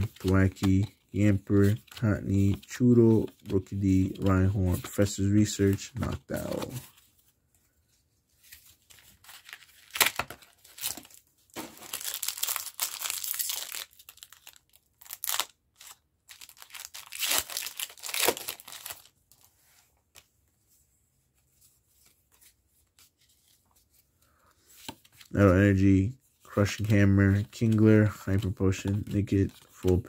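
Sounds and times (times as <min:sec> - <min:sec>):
foil wrapper tearing and crinkling: 0:09.2 - 0:19.1.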